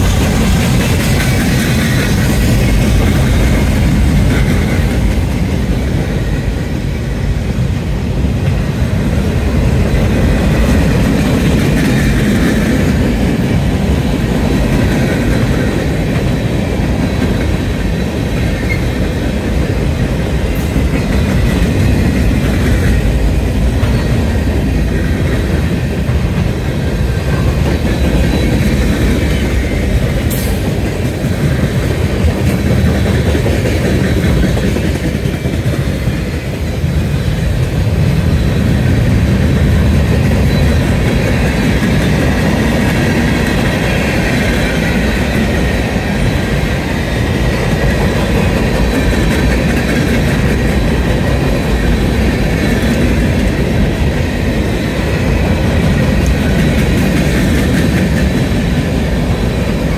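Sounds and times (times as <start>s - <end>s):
freight train wheels rumbling on rail: 0.0s - 59.9s.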